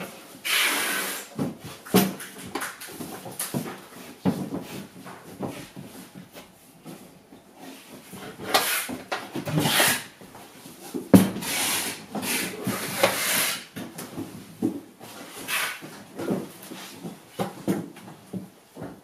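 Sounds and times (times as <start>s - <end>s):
metal brackets scraping on board: 8.5s - 8.9s, 9.5s - 10.1s.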